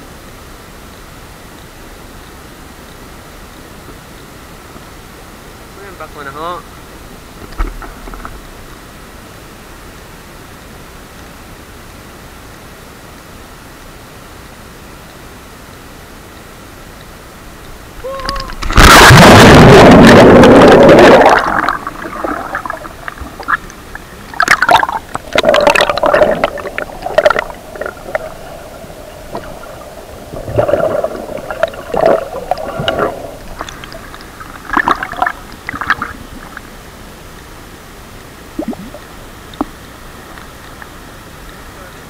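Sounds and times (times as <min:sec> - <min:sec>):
sharp underwater clicks: 0:17.0 - 0:28.4
underwater bubbling and gurgling: 0:17.6 - 0:37.5, 0:38.4 - 0:41.3
loud water splash: 0:18.0 - 0:36.6.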